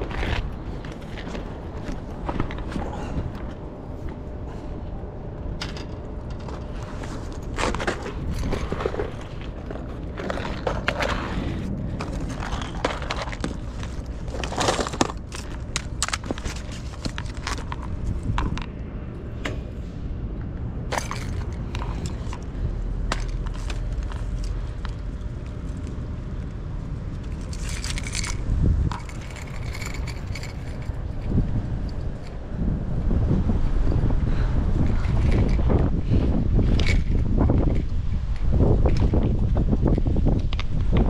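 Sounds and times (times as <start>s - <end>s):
wind rumble on microphone: 0.0s - 41.0s.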